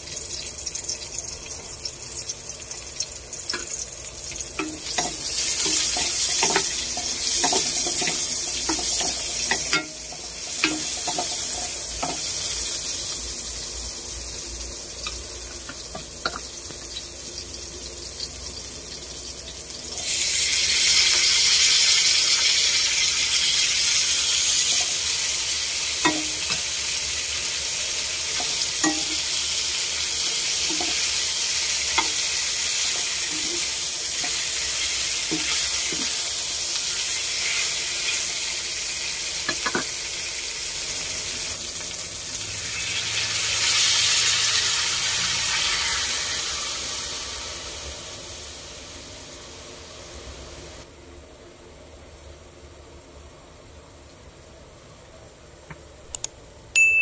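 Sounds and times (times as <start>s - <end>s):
meat sizzling in a wok: 0.0s - 50.9s.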